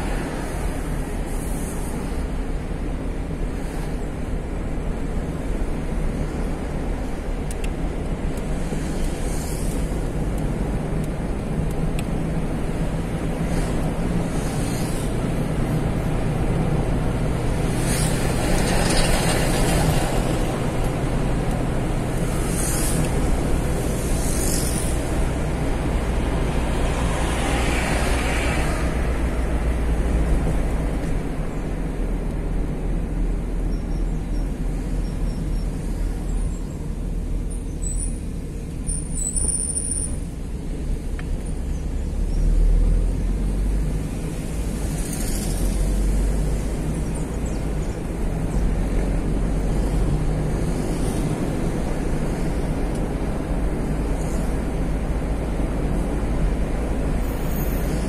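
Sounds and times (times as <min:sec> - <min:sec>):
car engine and road rumble: 0:00.0 - 0:58.0.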